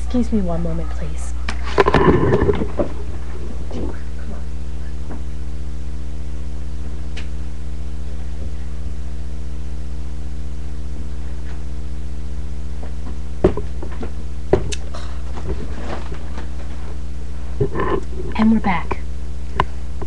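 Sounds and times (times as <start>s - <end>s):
steady low hum: 0.0s - 20.0s
sharp knocks: 13.4s - 14.8s.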